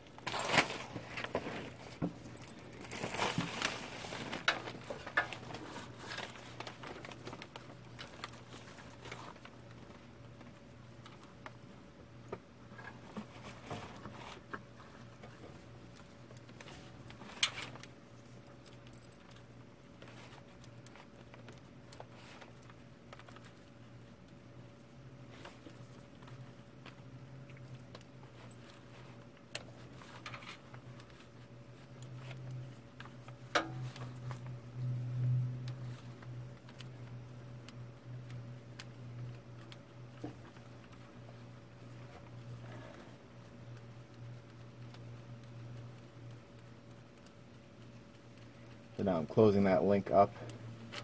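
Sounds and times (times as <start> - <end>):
faint steady hum: 0.0 - 51.0.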